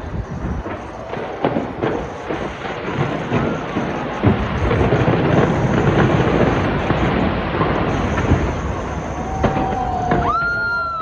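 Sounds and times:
fireworks bursting: 0.0 - 11.0
whistling tones: 7.9 - 11.0.

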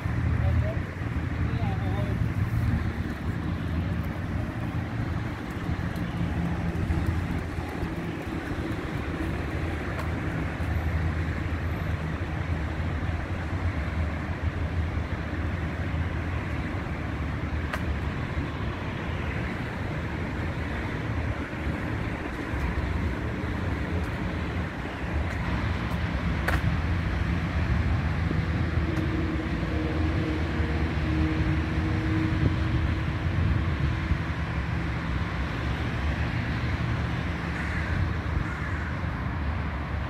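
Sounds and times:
distant road traffic rumble: 0.0 - 40.0.

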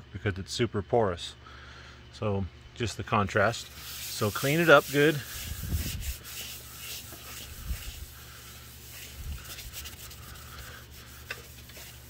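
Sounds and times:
paper towel rubbing a surface: 3.6 - 12.0.

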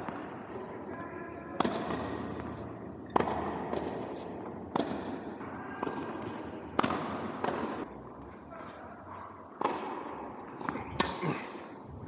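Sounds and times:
tennis racket hitting ball: 1.6 - 7.9, 9.6 - 11.2.

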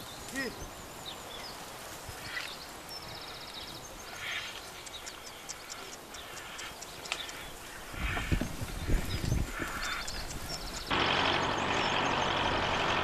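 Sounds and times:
light clicks: 4.5 - 7.8.

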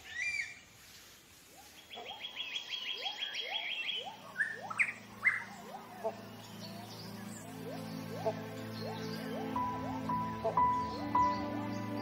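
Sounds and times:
birds chirping rapidly: 1.5 - 12.0
bird whistled call: 2.0 - 11.5.

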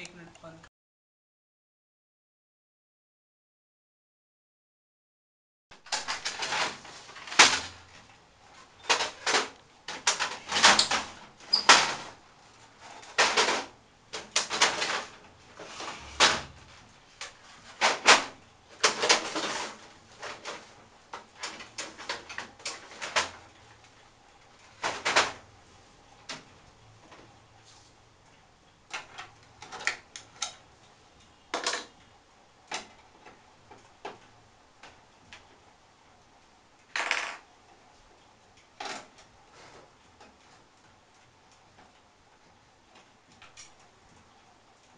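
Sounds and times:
plastic and metal parts clacking: 5.8 - 12.2, 12.8 - 24.0, 28.9 - 30.6.

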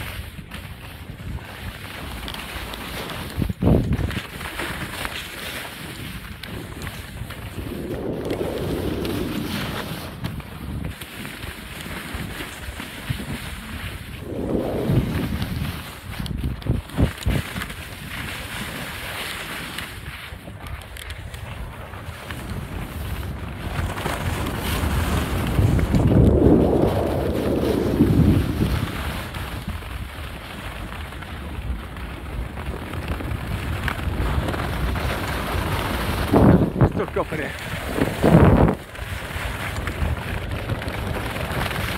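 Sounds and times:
skis scraping over snow: 0.0 - 41.9
wind rushing over microphone: 3.1 - 4.8, 5.7 - 19.0, 19.8 - 41.9.

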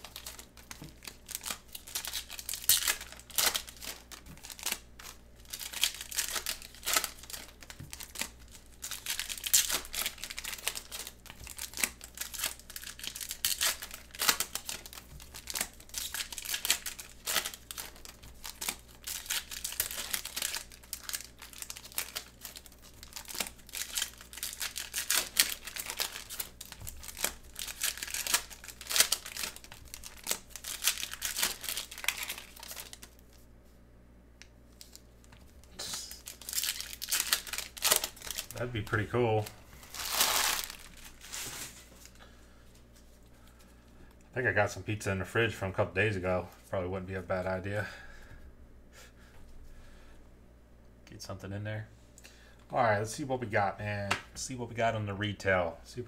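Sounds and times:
foil wrappers crinkling and tearing: 0.0 - 33.4, 34.7 - 42.2.

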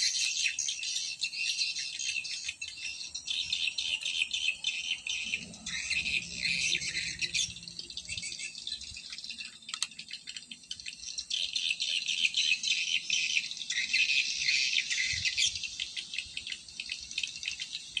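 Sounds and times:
shrill pulsing insect chorus: 0.0 - 18.0.

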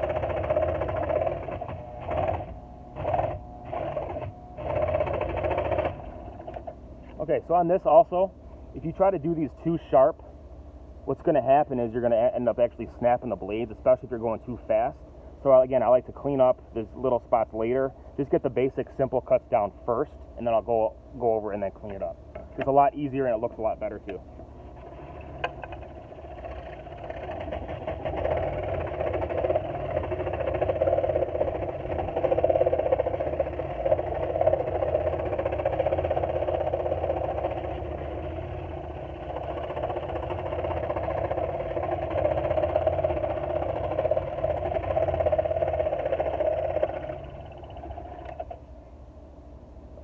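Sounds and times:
scroll saw cutting wood: 0.0 - 6.7, 24.8 - 48.6.

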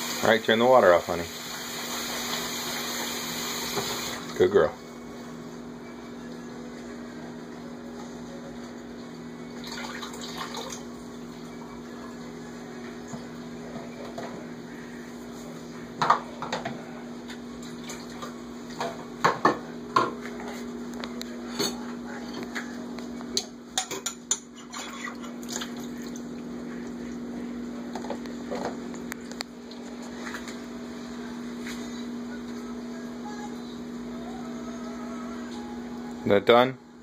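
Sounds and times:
steady hum: 3.7 - 24.6, 25.2 - 37.0
dishes clattering in metal sink: 23.4 - 26.1.

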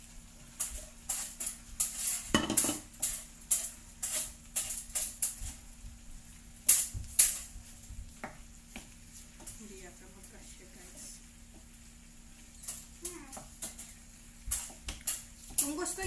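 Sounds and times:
wooden spoon scraping frying pan: 0.0 - 5.7, 6.6 - 10.2, 12.6 - 16.0.

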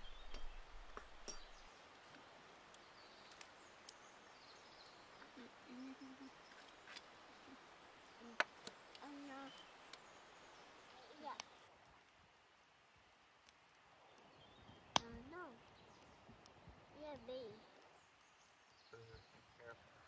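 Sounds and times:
faint steady hiss: 0.0 - 20.0
soft voice sounds: 5.3 - 6.4.

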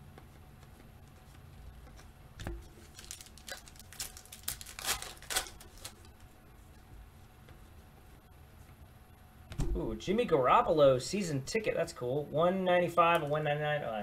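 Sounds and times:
plastic wrapper crinkling: 2.6 - 6.1.

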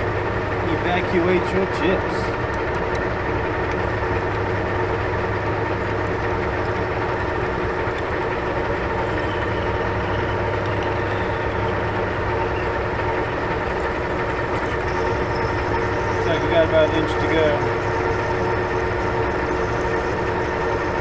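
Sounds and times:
lathe machine hum: 0.0 - 21.0
drill whining tones: 14.6 - 21.0.

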